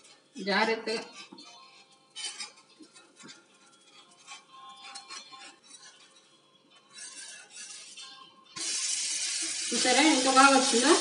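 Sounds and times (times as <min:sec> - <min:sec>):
spatula scraping metal pan: 0:00.0 - 0:11.0.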